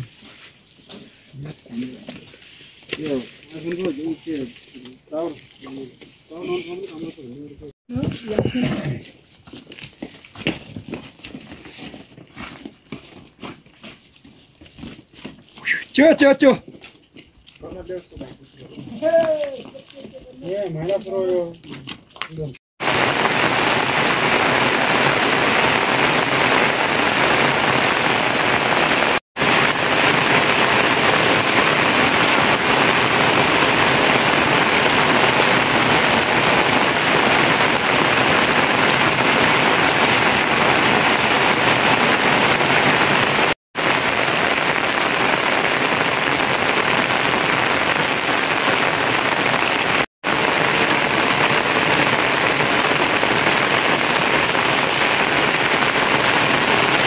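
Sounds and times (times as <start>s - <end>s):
steady rain falling: 0.0s - 9.0s, 22.8s - 57.0s.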